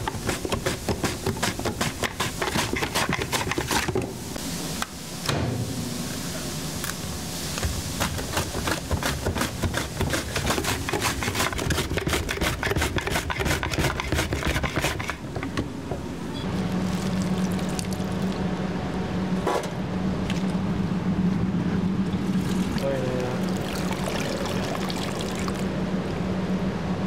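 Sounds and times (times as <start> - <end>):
onion sliced on mandoline: 0.0 - 4.0, 8.0 - 15.2.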